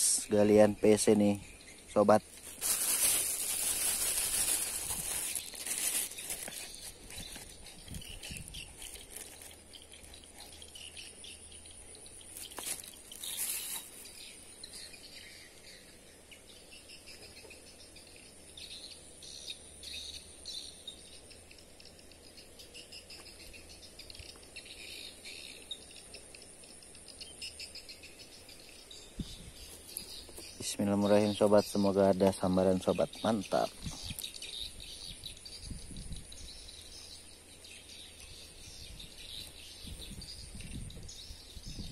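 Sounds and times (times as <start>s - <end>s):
bird chirps: 0.0s - 41.9s
insects trilling: 0.0s - 41.9s
handling rustle: 2.2s - 11.1s, 12.3s - 14.3s.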